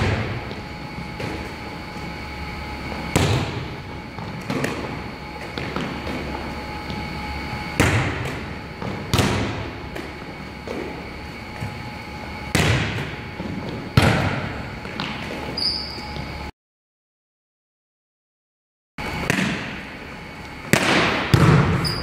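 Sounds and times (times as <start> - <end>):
volleyball being struck: 7.7 - 10.1, 12.5 - 13.2, 19.2 - 19.8, 20.7 - 22.0.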